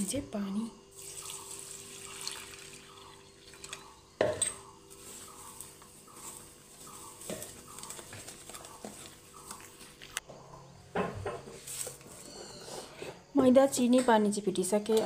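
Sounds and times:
water poured into steel bowl: 0:01.0 - 0:03.8.

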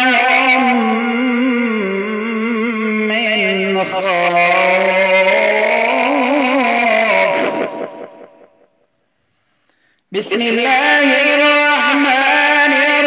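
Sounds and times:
man chanting melodically: 0:00.0 - 0:08.7, 0:10.1 - 0:13.0
breath: 0:09.0 - 0:10.1.

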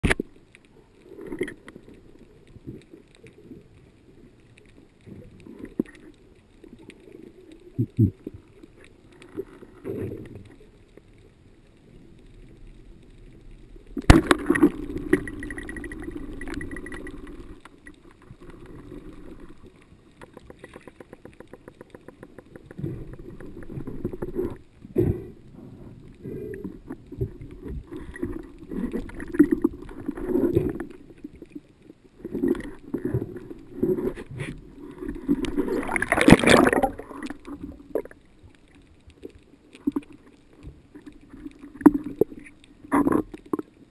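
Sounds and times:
rushing water underwater: 0:00.0 - 0:43.9
water murmur and knocks: 0:12.2 - 0:43.9
speargun firing crack underwater: 0:14.0 - 0:15.3.

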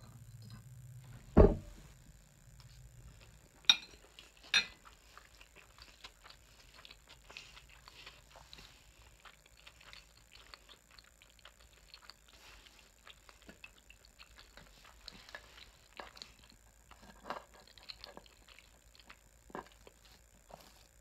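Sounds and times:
wet mouth chewing clicks: 0:04.0 - 0:20.0.

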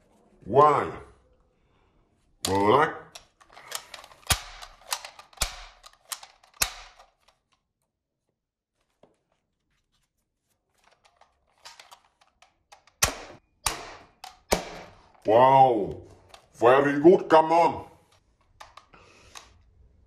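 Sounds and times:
toy revolver plastic clicks: 0:02.4 - 0:07.5, 0:11.0 - 0:15.0, 0:18.4 - 0:19.6.

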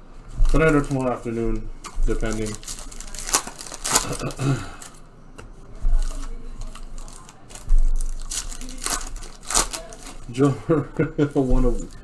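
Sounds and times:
low thumps: 0:00.0 - 0:02.9, 0:07.5 - 0:09.3
wrappers crinkling: 0:00.2 - 0:05.1, 0:05.8 - 0:12.0
cards being handled: 0:00.3 - 0:10.6, 0:11.2 - 0:12.0.

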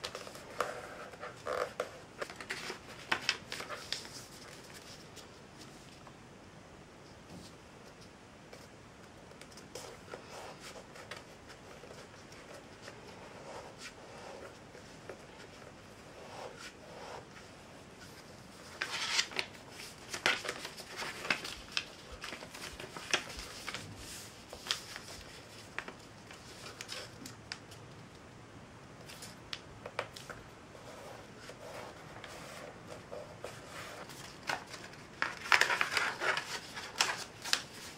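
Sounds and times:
paper rustling as folded: 0:00.0 - 0:06.0, 0:16.5 - 0:27.8, 0:29.0 - 0:37.9.

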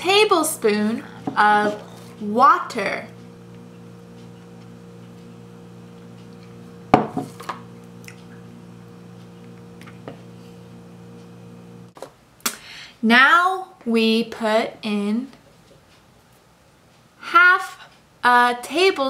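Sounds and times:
low electrical hum: 0:00.0 - 0:19.0
utensil clunk: 0:01.2 - 0:02.1, 0:06.9 - 0:07.7.

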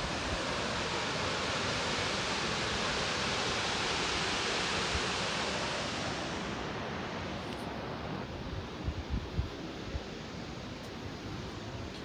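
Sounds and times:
waterfall rushing: 0:00.0 - 0:08.4.

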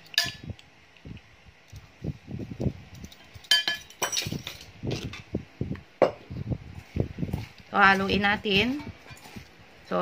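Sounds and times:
spoon clinking against metal bowl: 0:00.1 - 0:00.4, 0:03.4 - 0:04.4.

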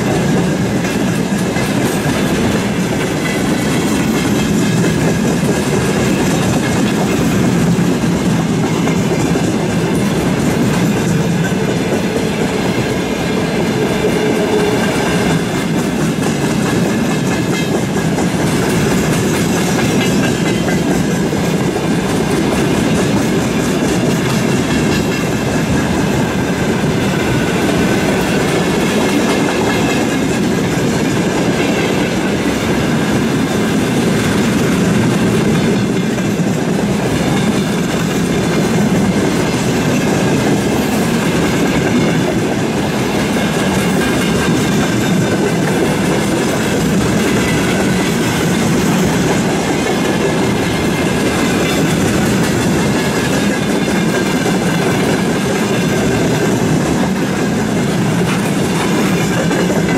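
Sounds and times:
train wheels rumbling on rails: 0:00.0 - 0:59.9
wheels clacking over rail joints: 0:00.0 - 0:59.9.

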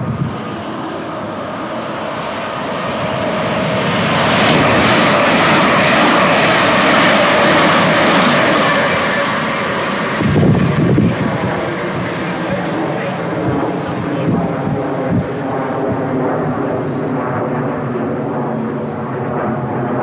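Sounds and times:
train passing: 0:01.2 - 0:12.1.

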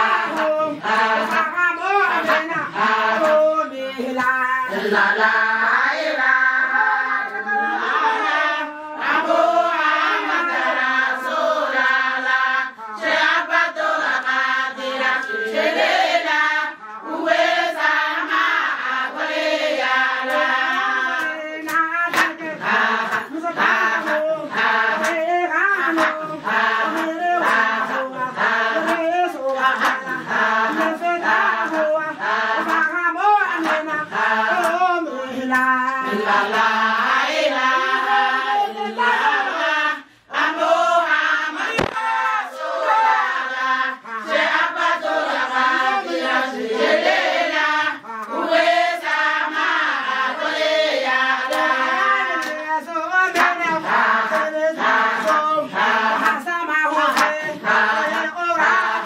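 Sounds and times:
women singing a chant: 0:00.0 - 0:59.0
sharp percussive strikes: 0:41.6 - 0:42.3.

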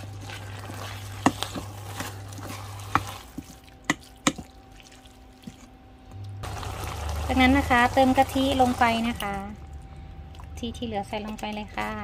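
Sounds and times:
spatula scraping metal bowl: 0:00.0 - 0:03.5
low hum: 0:00.0 - 0:12.0.

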